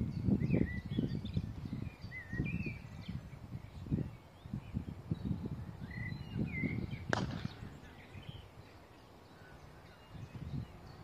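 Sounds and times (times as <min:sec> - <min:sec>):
birds chirping: 0:00.0 - 0:11.0
wind buffeting microphone: 0:00.0 - 0:11.0
cricket bat striking ball: 0:07.1 - 0:07.6.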